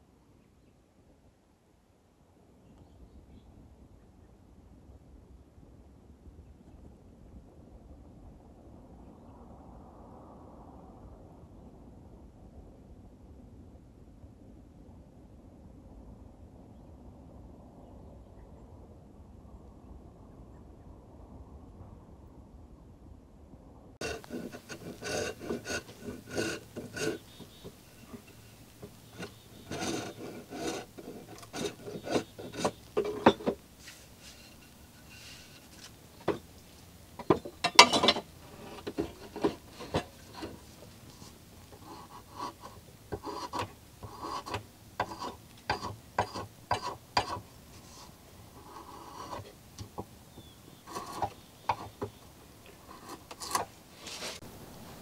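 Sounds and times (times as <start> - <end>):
drawknife scraping wood: 24.0 - 54.5.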